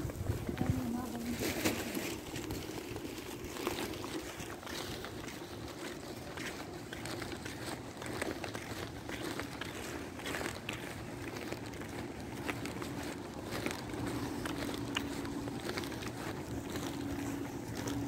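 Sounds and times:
distant traffic: 0.0 - 18.0
wind: 0.0 - 18.0
low hum: 10.9 - 18.0.

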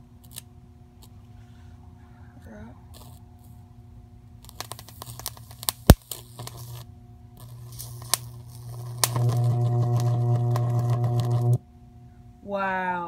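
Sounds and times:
buzzing electric arc: 0.0 - 0.4, 2.9 - 3.6, 4.4 - 11.6
loud electric snap: 0.2 - 1.1, 3.0 - 3.6, 4.4 - 11.6
electric sparks crackling: 3.0 - 3.2, 4.4 - 11.6
transformer humming: 4.4 - 11.6.

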